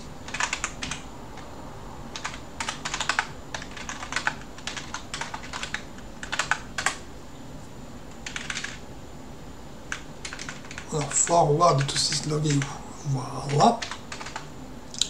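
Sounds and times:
typing on computer keyboard: 0:00.3 - 0:01.0, 0:02.2 - 0:07.0, 0:08.2 - 0:08.8, 0:09.9 - 0:11.2, 0:13.4 - 0:14.5.

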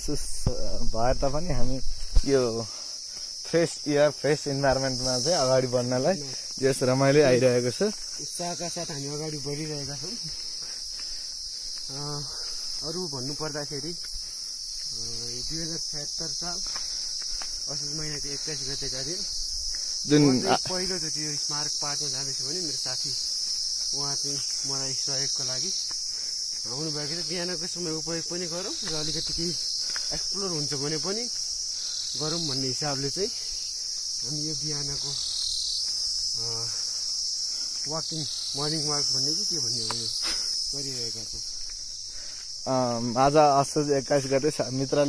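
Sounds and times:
man talking: 0:00.0 - 0:02.7, 0:03.5 - 0:10.4, 0:20.1 - 0:23.2, 0:42.6 - 0:45.0
insects chorus: 0:00.0 - 0:45.0.

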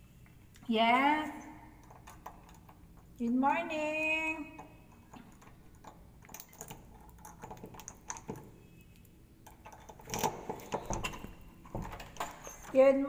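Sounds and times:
small clicks and rustles: 0:01.8 - 0:03.3, 0:04.5 - 0:12.9.

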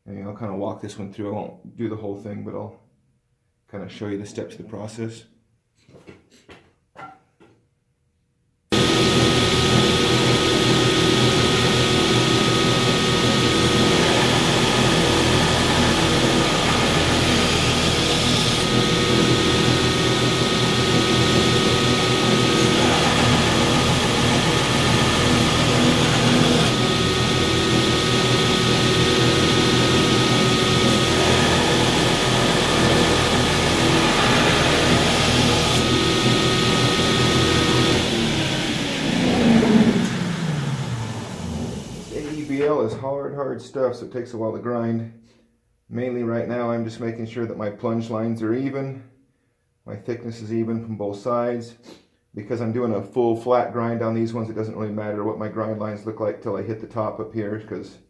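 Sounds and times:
belt grinder motor hum: 0:08.7 - 0:42.6.

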